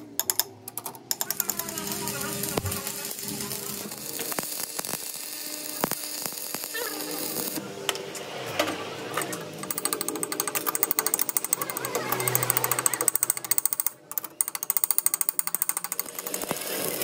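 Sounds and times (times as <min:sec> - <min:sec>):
welding arc crackling and hissing: 0:01.1 - 0:07.6, 0:14.8 - 0:17.0.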